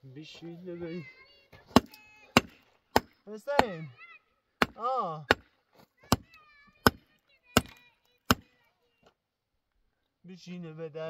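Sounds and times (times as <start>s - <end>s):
axe striking the ground: 1.7s - 3.8s, 4.6s - 7.0s.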